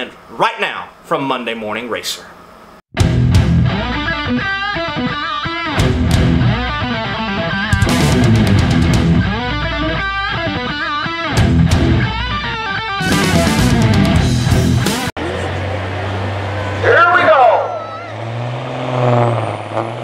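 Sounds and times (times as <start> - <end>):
rock music with electric guitar: 3.0 - 15.1.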